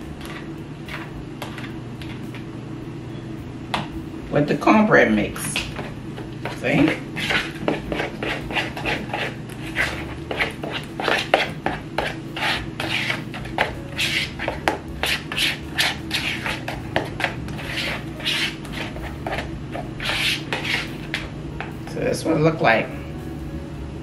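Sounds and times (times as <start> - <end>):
low steady hum: 0.0 - 24.0
utensil stirring batter in bowl: 5.7 - 21.3.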